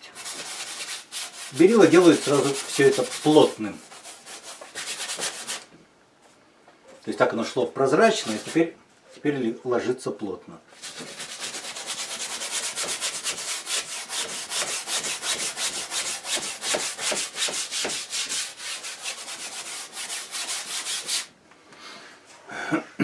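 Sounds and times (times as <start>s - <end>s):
bristle brush scrubbing canvas: 0.0s - 5.7s, 10.8s - 21.3s.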